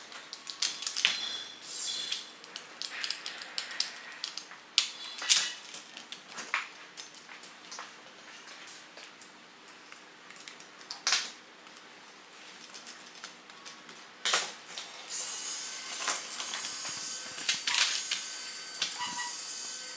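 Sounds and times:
toy motor whirring: 0.6s - 5.6s, 15.1s - 19.9s
plastic parts clicking: 2.1s - 6.2s.

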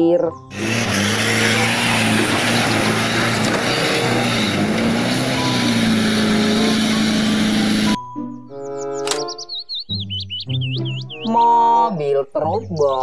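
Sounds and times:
loud rushing noise: 0.5s - 8.0s
truck diesel engine labouring: 0.5s - 8.0s.

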